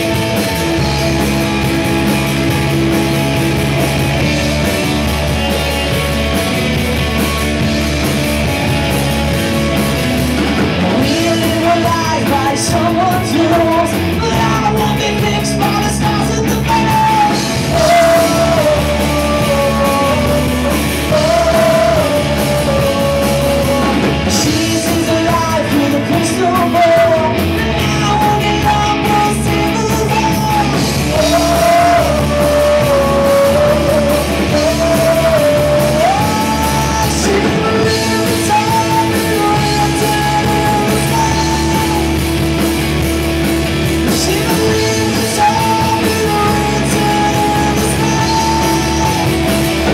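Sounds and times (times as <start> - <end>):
rock band playing: 0.0 - 49.9
man singing: 10.7 - 42.9, 43.9 - 49.9.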